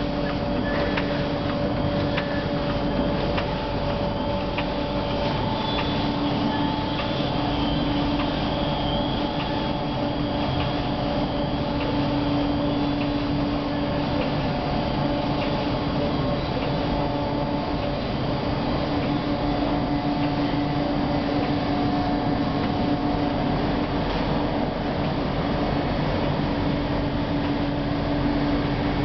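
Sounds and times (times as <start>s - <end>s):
printing press mechanical hum: 0.0s - 29.0s.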